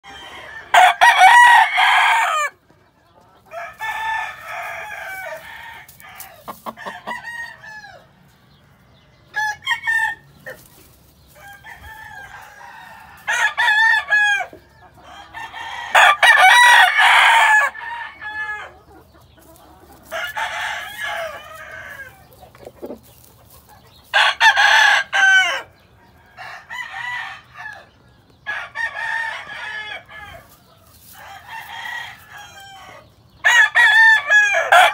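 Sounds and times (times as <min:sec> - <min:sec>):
chickens clucking: 0:00.0 - 0:34.9
roosters crowing: 0:00.0 - 0:34.9.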